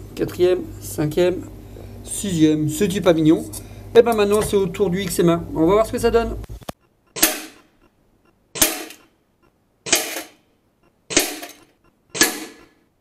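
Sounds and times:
pellet striking metal ringing: 7.1s - 7.8s
air rifle shots: 7.2s - 7.8s, 8.6s - 9.1s, 11.1s - 11.6s, 12.2s - 12.8s.

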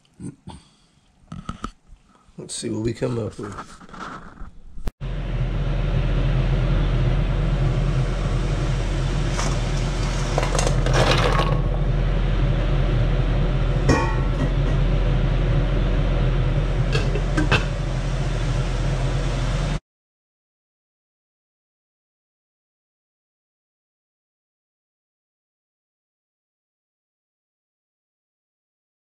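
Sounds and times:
gas stove hum and rush: 5.0s - 19.8s
glass lid clinking on pot: 13.9s - 14.5s.

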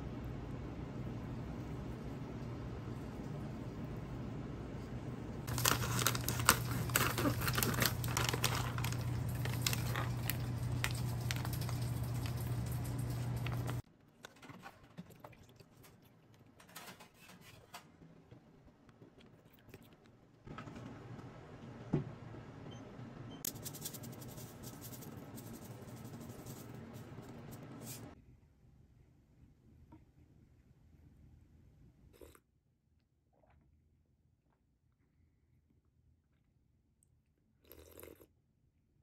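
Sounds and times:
plastic pouch crinkling: 5.5s - 13.8s.

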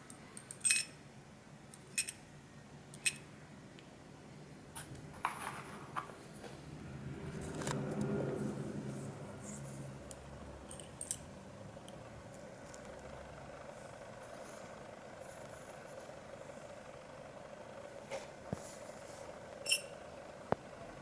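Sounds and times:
small metal parts clicking: 0.1s - 1.0s, 1.7s - 2.2s, 2.9s - 3.3s, 10.7s - 11.2s, 19.6s - 19.9s
low hum: 4.3s - 21.0s.

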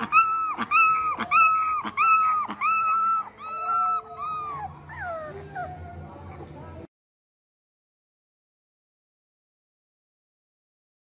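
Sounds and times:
puppy howling: 0.0s - 6.0s.

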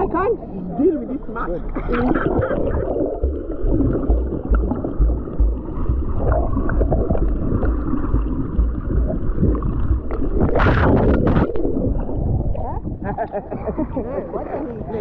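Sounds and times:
underwater water gurgling: 1.6s - 15.0s
water splash: 2.0s - 13.0s.

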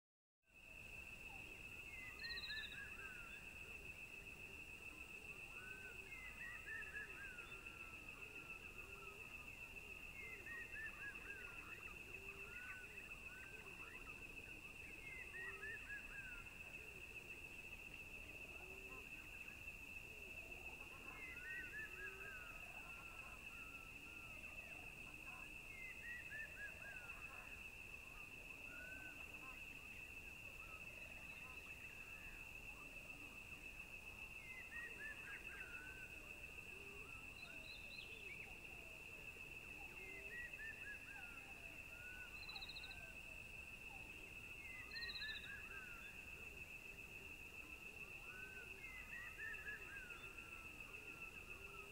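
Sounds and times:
high insect trill: 0.6s - 51.9s
bird chirping: 2.0s - 3.0s.

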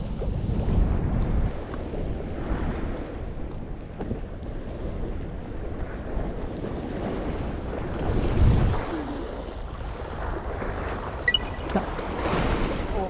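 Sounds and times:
sea wash: 0.0s - 13.0s
wind buffeting microphone: 0.0s - 13.0s.

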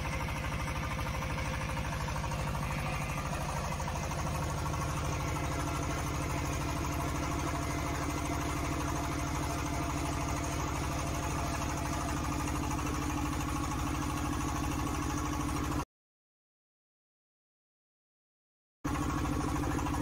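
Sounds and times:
drilling rig engine pulsing: 0.0s - 14.6s.

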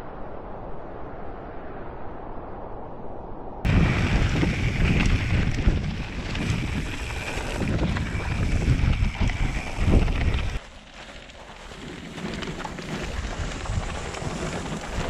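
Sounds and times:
wind buffeting microphone: 3.6s - 10.6s, 11.7s - 15.0s
bike rattling: 3.7s - 15.0s
bike tyres rumbling: 3.7s - 15.0s.

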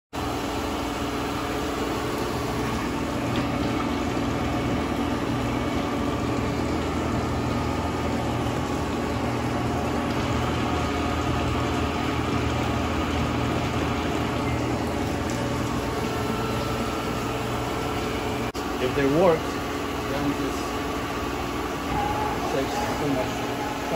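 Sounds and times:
machine hum: 0.2s - 23.9s.

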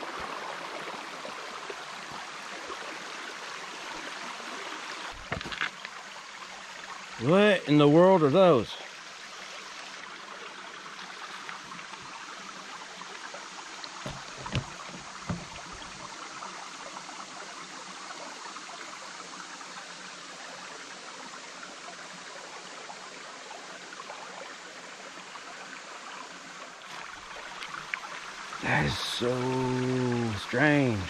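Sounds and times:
creek running over rocks: 0.0s - 31.0s
short thumps: 14.1s - 16.0s.

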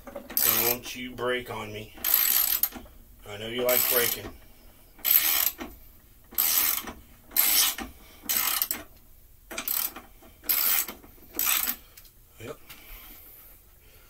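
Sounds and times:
socket ratchet wrench clicking: 2.0s - 2.8s, 5.0s - 5.6s, 6.4s - 8.8s, 9.6s - 11.8s.

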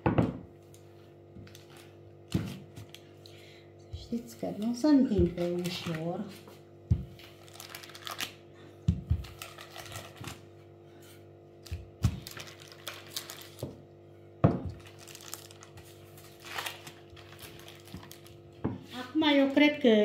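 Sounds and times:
baking paper rustling: 4.1s - 8.4s, 9.0s - 10.6s, 11.6s - 13.8s, 14.7s - 19.6s.

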